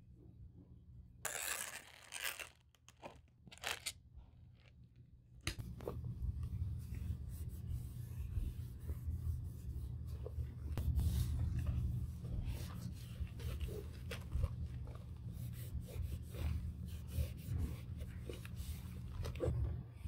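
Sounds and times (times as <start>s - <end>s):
handling leather bag: 1.3s - 3.9s.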